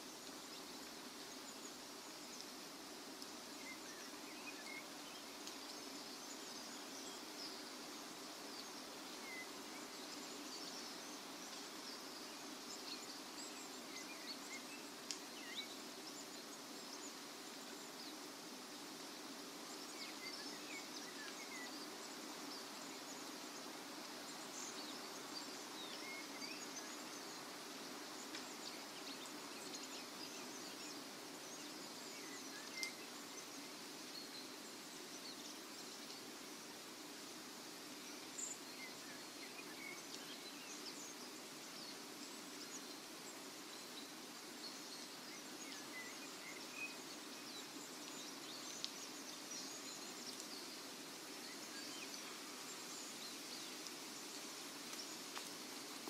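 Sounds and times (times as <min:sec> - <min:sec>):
faint bird chirps: 0:00.0 - 0:56.0
steady hiss: 0:00.0 - 0:56.0
small crackles: 0:00.1 - 0:56.0.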